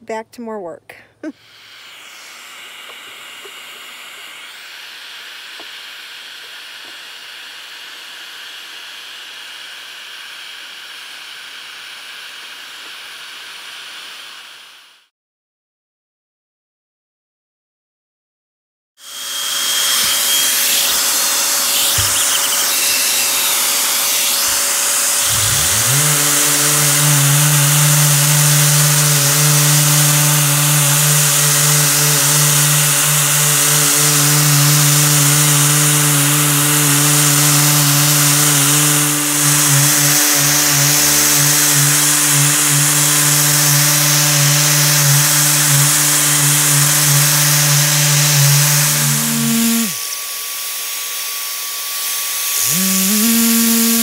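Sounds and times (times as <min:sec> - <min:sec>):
motor hum: 0:01.3 - 0:15.0, 0:19.0 - 0:54.0
orbital sander on wood: 0:01.3 - 0:15.1, 0:19.0 - 0:54.0.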